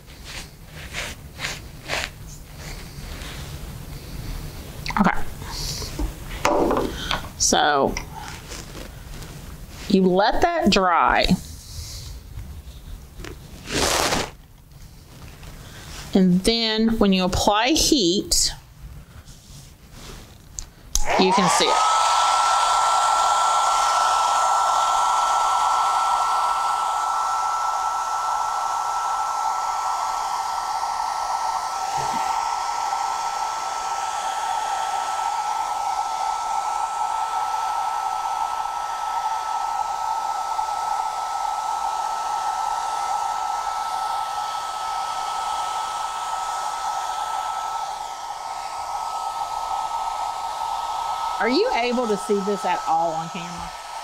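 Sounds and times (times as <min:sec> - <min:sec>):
hair dryer running: 0:05.2 - 0:08.9, 0:21.0 - 0:54.0.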